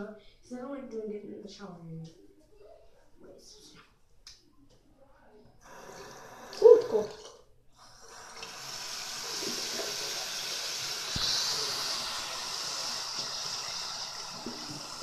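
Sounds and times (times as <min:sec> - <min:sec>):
faucet water splashing into basin: 0:07.9 - 0:15.0.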